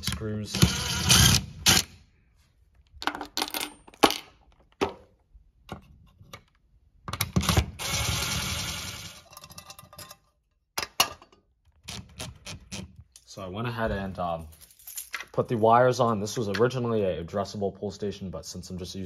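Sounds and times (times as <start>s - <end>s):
cordless drill driving screw: 0.5s - 1.9s.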